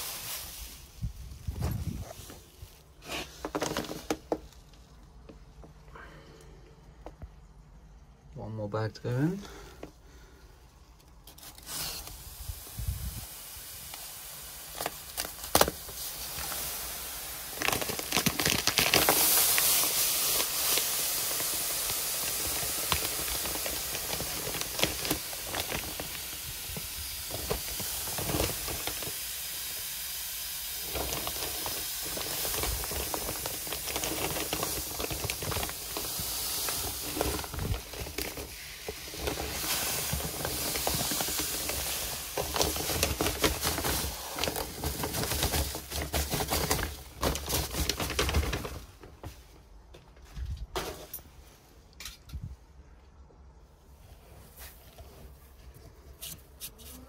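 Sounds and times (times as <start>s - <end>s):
sand pouring hiss: 0.0s - 5.2s, 9.2s - 48.1s.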